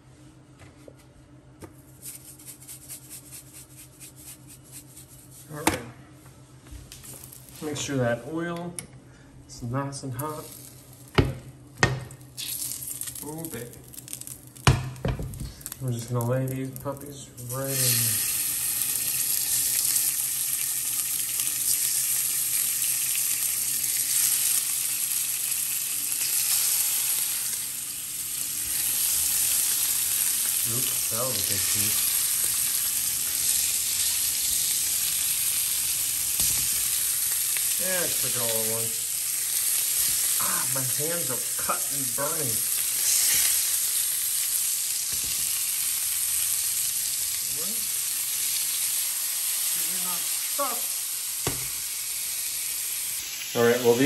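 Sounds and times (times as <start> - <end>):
fish sizzling in hot oil: 12.4 - 14.8, 17.5 - 54.0.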